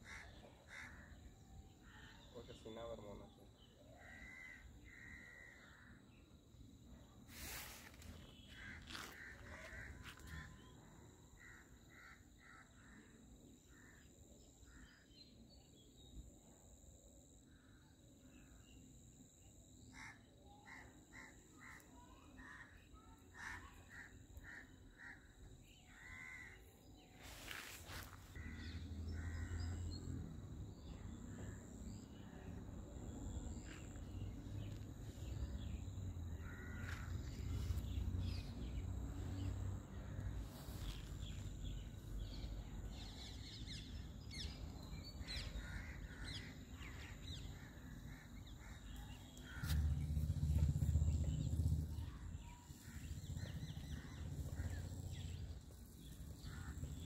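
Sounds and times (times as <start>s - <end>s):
birds calling: 7.4s - 10.7s, 45.4s - 57.0s.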